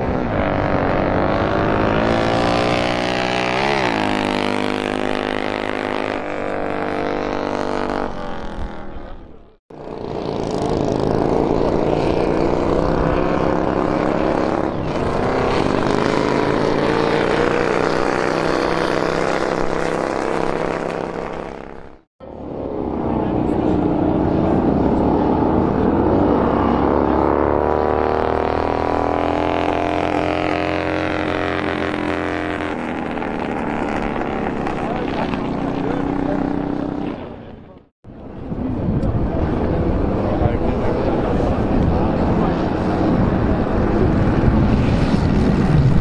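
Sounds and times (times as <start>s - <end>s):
motorcycle engines racing: 0.0s - 46.0s.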